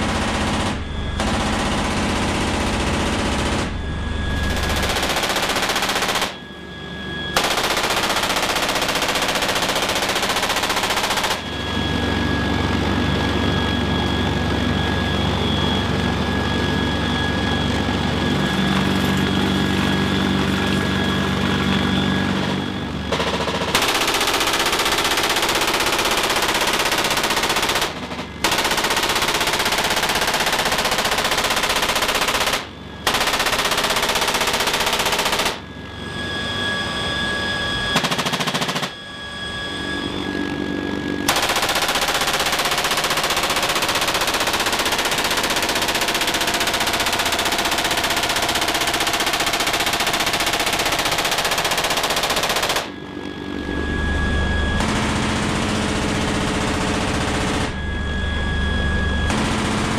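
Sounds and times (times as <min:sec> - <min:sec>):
low helicopter drone: 0:00.0 - 0:59.9
machine gun firing bursts: 0:04.5 - 0:06.4, 0:07.4 - 0:11.5, 0:23.1 - 0:35.6, 0:38.0 - 0:39.0, 0:41.3 - 0:52.9, 0:54.8 - 0:57.7, 0:59.3 - 0:59.9.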